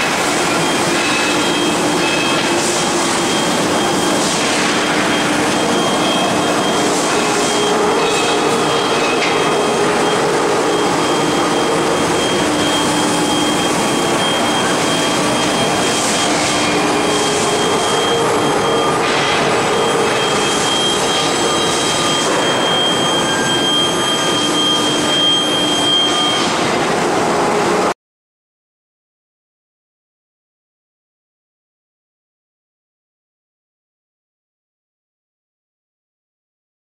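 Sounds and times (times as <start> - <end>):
industrial machine high tone: 0.0 - 28.0
low machine hums: 0.2 - 27.9.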